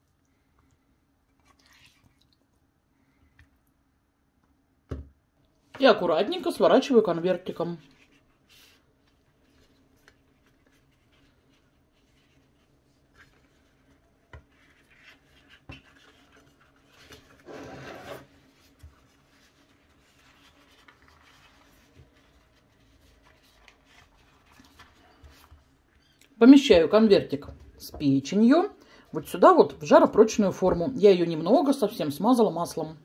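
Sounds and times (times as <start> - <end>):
flatbread rustling: 7.7 - 26.2.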